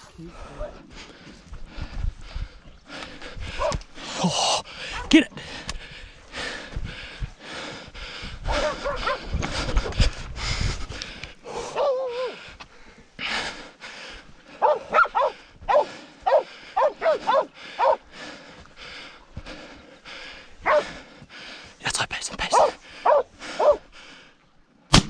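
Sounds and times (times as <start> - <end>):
dogs barking: 3.6 - 3.8, 4.9 - 5.2, 8.5 - 9.3, 11.6 - 12.4, 14.5 - 18.1, 20.6 - 21.0, 22.5 - 23.9.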